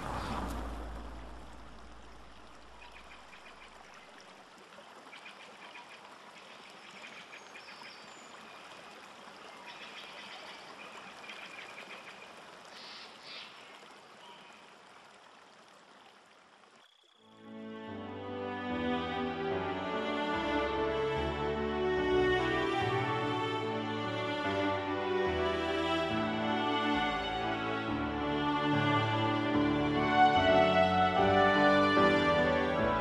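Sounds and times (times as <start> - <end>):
low rumble: 0.0 - 3.2.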